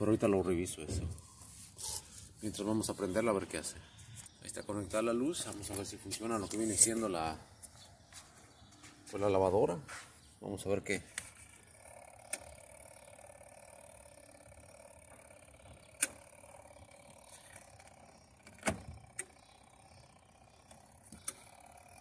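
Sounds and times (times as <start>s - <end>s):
faint steady hum: 11.1s - 22.0s
timer dial clicks: 11.2s - 22.0s.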